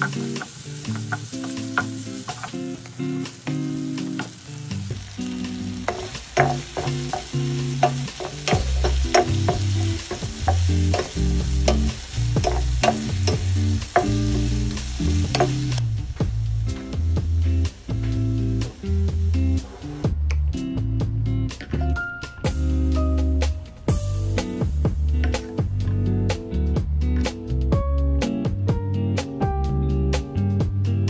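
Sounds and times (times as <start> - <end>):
food sizzling in a pan: 0.0 - 20.0, 22.3 - 25.7
background music: 0.0 - 31.0.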